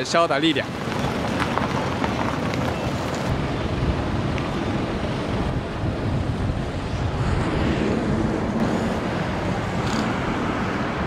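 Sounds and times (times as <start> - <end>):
wind buffeting microphone: 0.6 - 11.0.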